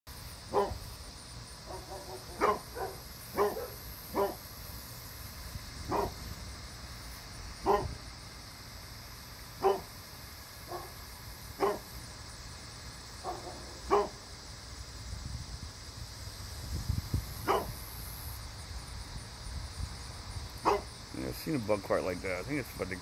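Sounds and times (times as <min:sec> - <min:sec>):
dog barking: 0:00.5 - 0:00.8, 0:01.7 - 0:04.4, 0:05.9 - 0:06.2, 0:07.6 - 0:08.0, 0:09.6 - 0:09.9, 0:10.7 - 0:11.0, 0:11.6 - 0:11.9, 0:13.2 - 0:14.2, 0:17.5 - 0:17.8, 0:20.6 - 0:20.9.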